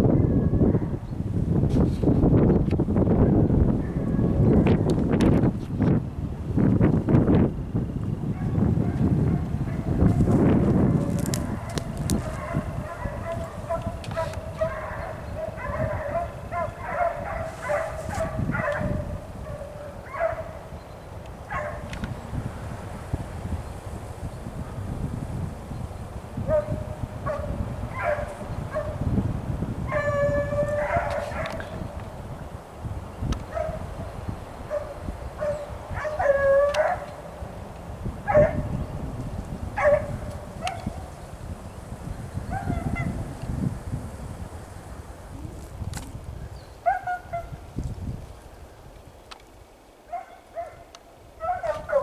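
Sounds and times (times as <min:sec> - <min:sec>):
wind rumble on microphone: 0:00.0 - 0:52.0
distant hounds baying: 0:11.3 - 0:20.7, 0:21.4 - 0:21.9, 0:26.4 - 0:29.0, 0:29.9 - 0:31.8, 0:34.6 - 0:37.4, 0:38.2 - 0:38.8, 0:39.7 - 0:41.2, 0:42.4 - 0:43.2, 0:46.8 - 0:47.6, 0:50.1 - 0:52.0
hound yelping and baying: 0:11.6 - 0:18.9, 0:34.7 - 0:37.1
dog barking sharply: 0:50.1 - 0:52.0.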